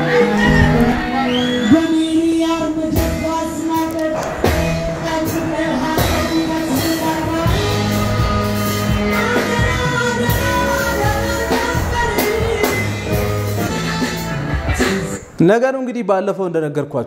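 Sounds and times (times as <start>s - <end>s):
bass: 0.0s - 15.2s
keyboard: 0.0s - 15.3s
woman singing into a microphone: 5.2s - 13.1s.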